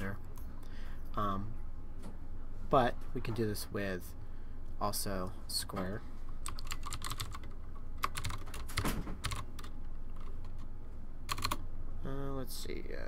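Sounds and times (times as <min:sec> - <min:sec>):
low steady hum: 0:00.0 - 0:13.0
typing on computer keyboard: 0:06.4 - 0:10.6, 0:11.3 - 0:11.6.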